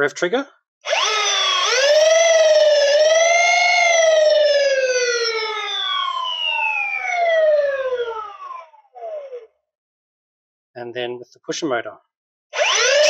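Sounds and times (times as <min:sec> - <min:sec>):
flywheel motors whining: 0:00.9 - 0:09.4, 0:12.6 - 0:13.0.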